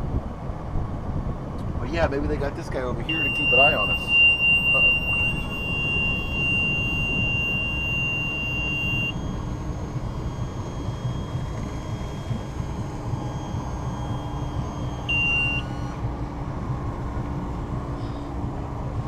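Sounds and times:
boat engine rumble: 0.0 - 19.0
high-pitched electronic beep: 3.0 - 16.0.

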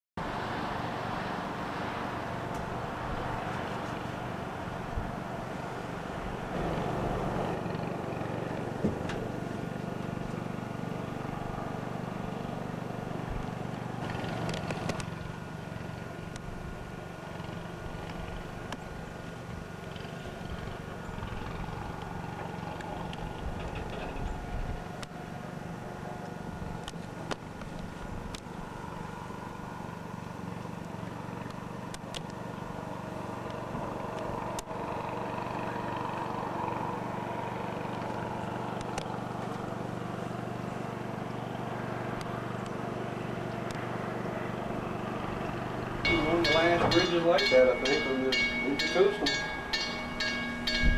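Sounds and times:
aircraft engine drone: 0.2 - 50.9.

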